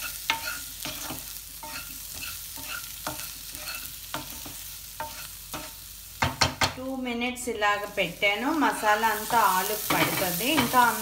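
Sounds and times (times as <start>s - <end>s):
utensil scraping a pan: 0.0s - 5.8s
potatoes sizzling in oil: 0.0s - 11.0s.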